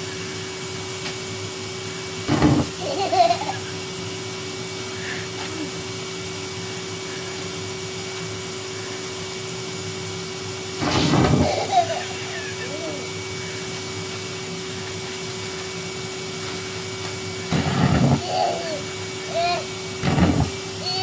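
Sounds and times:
vacuum cleaner humming: 0:00.0 - 0:21.0
baby vocalizing: 0:18.2 - 0:19.7.

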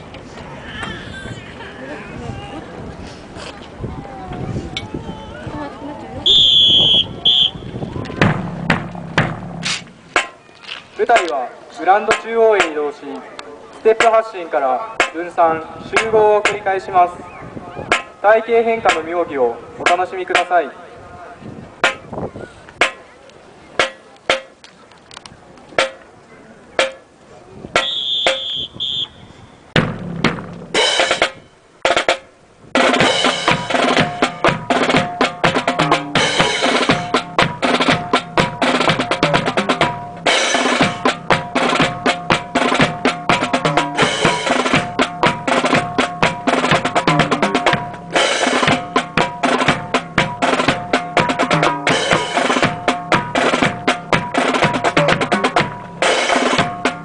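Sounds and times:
marching snare and bass drums: 0:06.2 - 0:12.8, 0:13.9 - 0:14.2, 0:15.0 - 0:16.7, 0:17.8 - 0:18.2, 0:18.8 - 0:19.1, 0:19.8 - 0:20.6, 0:21.8 - 0:23.0, 0:23.8 - 0:24.6, 0:25.8 - 0:26.0, 0:26.8 - 0:27.1, 0:27.7 - 0:57.0.

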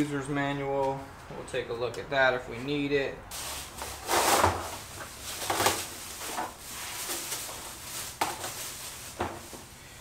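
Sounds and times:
plastic wrapping rustling: 0:03.3 - 0:09.8.

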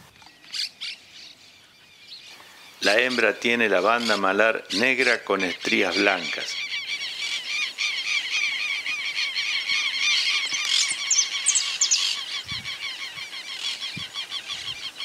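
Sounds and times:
birds calling: 0:00.0 - 0:15.0
high thin bird chirps: 0:00.2 - 0:15.0.

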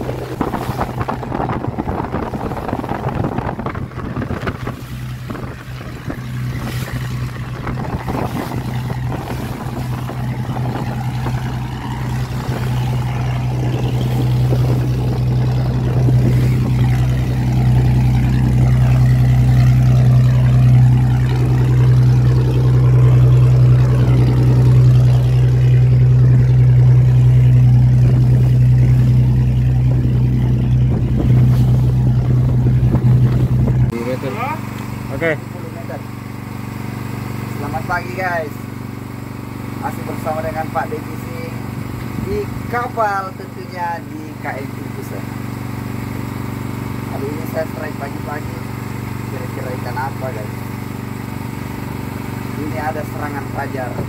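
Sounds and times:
wind on microphone: 0:00.0 - 0:34.1
boat engine droning: 0:00.0 - 0:54.0
water rushing past hull: 0:00.0 - 0:54.0.

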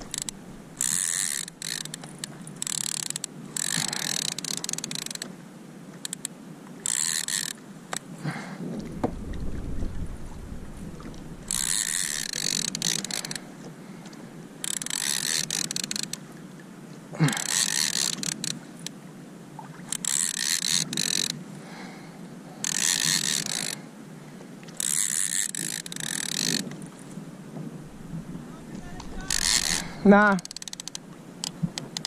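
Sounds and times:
fishing reel whirring rattle: 0:00.0 - 0:05.3, 0:06.1 - 0:07.6, 0:11.4 - 0:13.4, 0:14.6 - 0:16.2, 0:17.3 - 0:18.6, 0:19.9 - 0:21.4, 0:22.6 - 0:23.8, 0:24.8 - 0:26.7, 0:29.1 - 0:32.0.

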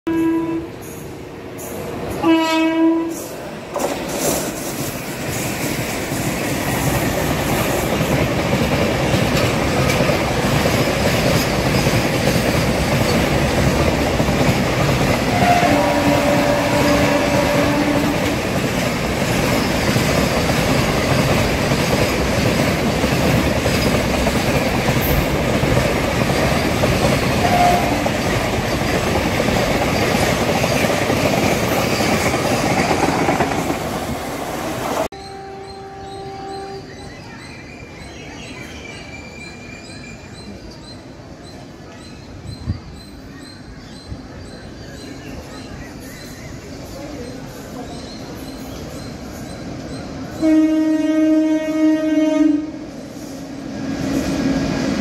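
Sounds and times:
train horn blasts: 0:00.1 - 0:00.8, 0:02.2 - 0:03.3, 0:15.3 - 0:18.4, 0:27.4 - 0:28.2, 0:35.1 - 0:36.9, 0:50.4 - 0:52.9
train rumbling past: 0:00.1 - 0:55.0
wheels clickety-clack over rails: 0:03.7 - 0:35.1.

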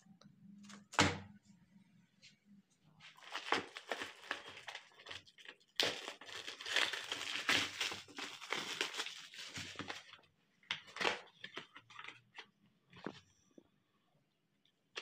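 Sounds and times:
plastic shrink-wrap crinkling and tearing: 0:03.1 - 0:12.2.

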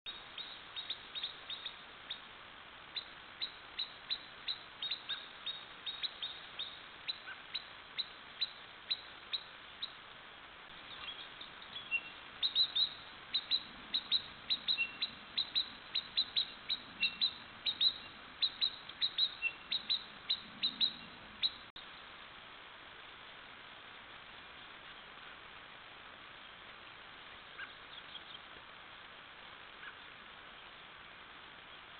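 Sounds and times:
faint steady hiss: 0:00.1 - 0:31.9
ground squirrel alarm chirps: 0:02.9 - 0:10.0, 0:10.9 - 0:21.7.

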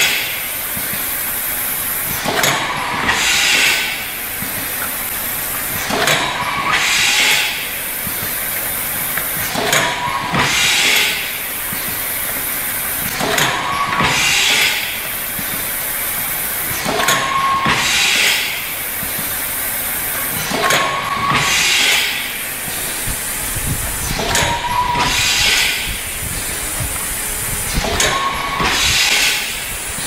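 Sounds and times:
brief machine tone: 0:24.2 - 0:25.6, 0:27.9 - 0:29.4.

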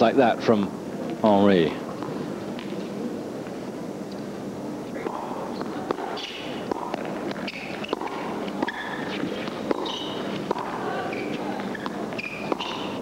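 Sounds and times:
footsteps on indoor court: 0:05.0 - 0:12.9
ball bouncing: 0:05.0 - 0:13.0
racket striking tennis ball: 0:05.0 - 0:13.0.

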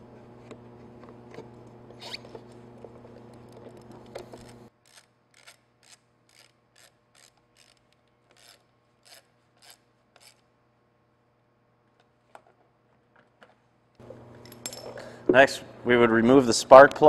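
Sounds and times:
ratchet wrench clicking: 0:04.8 - 0:10.4.

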